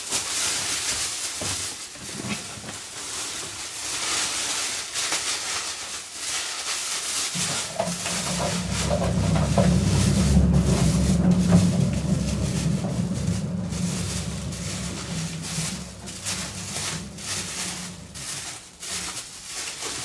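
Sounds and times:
plastic bag crinkling: 0:00.0 - 0:20.0
steady low hum: 0:07.8 - 0:18.8.

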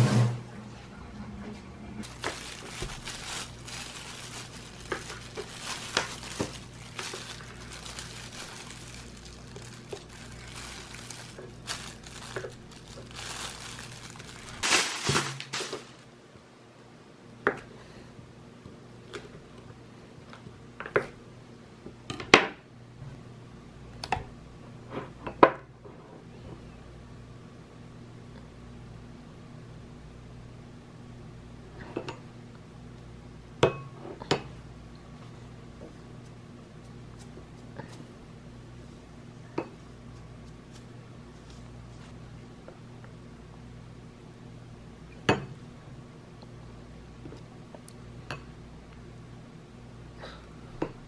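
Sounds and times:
plastic gloves crinkling: 0:02.0 - 0:16.1.

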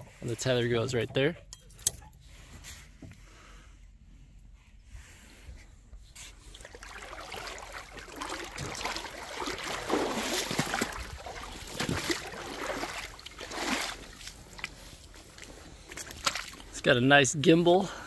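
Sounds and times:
footsteps sloshing through water and mud: 0:06.0 - 0:17.1.

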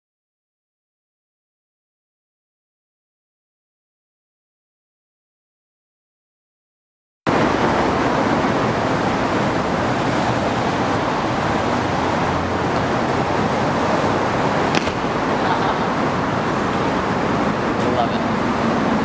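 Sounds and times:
street traffic rushing hiss: 0:07.3 - 0:19.0.

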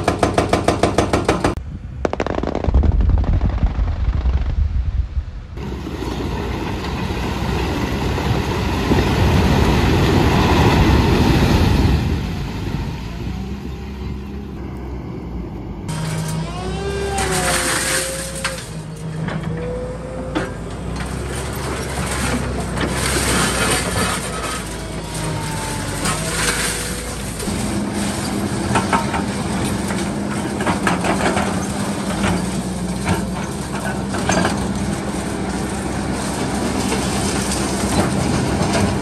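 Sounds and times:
diesel engine under load: 0:05.4 - 0:39.0
concrete rubble crunching and scraping: 0:21.1 - 0:39.0.

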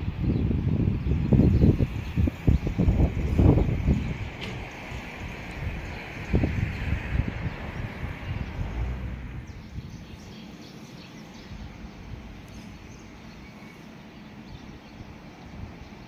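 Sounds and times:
low rumble: 0:00.0 - 0:10.4
wind buffeting microphone: 0:00.0 - 0:16.0
faint bird chirps: 0:09.5 - 0:16.0.

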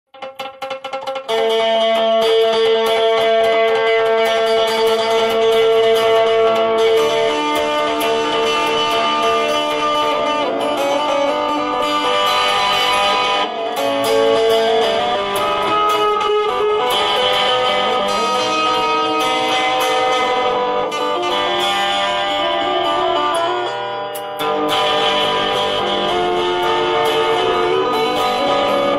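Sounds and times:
electric guitar melody: 0:00.1 - 0:28.9.

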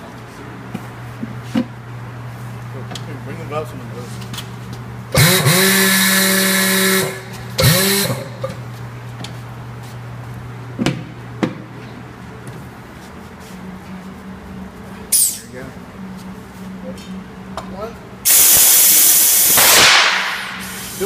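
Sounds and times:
steady low hum: 0:00.0 - 0:21.0
motor whirring: 0:05.2 - 0:08.4.

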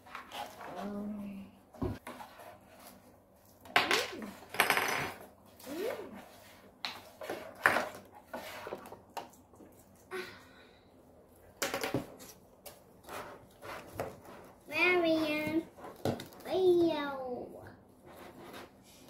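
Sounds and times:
plastic fork scraping plastic tub: 0:05.7 - 0:09.0
child's voice: 0:14.7 - 0:15.7, 0:16.4 - 0:17.8.

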